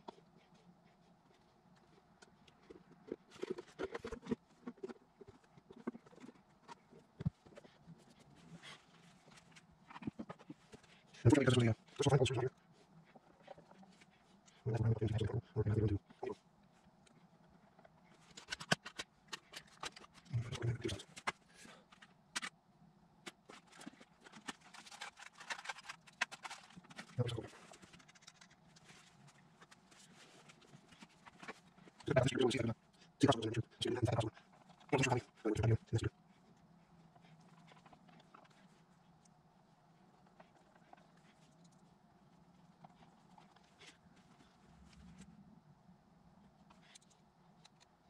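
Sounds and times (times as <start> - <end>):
clicks and knocks of handling: 17.8 - 20.4, 23.2 - 32.0.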